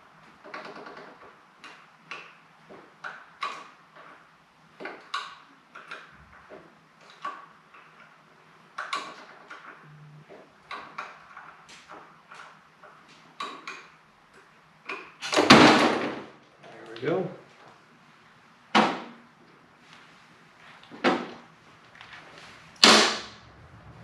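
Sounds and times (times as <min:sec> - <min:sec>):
faint steady hum: 0:09.6 - 0:15.2.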